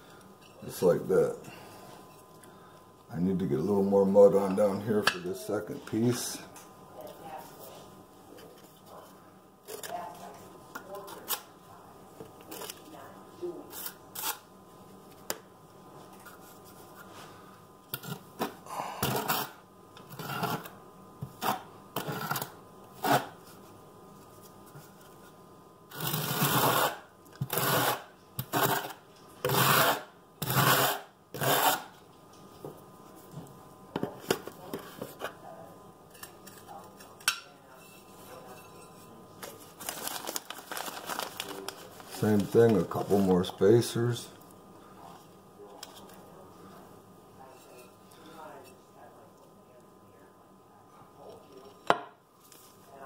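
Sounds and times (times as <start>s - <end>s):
trowel scraping mortar: 25.9s - 31.9s.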